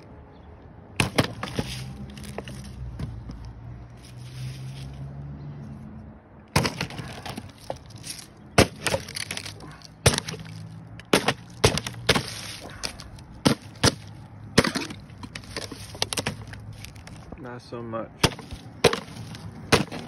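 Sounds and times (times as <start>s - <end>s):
knife chopping plastic bottle: 6.6s - 7.5s, 8.6s - 16.5s, 18.2s - 20.0s.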